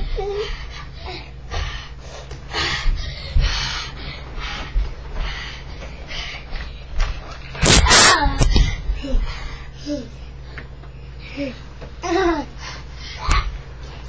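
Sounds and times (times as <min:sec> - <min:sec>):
children breathing hard: 0:00.0 - 0:07.3.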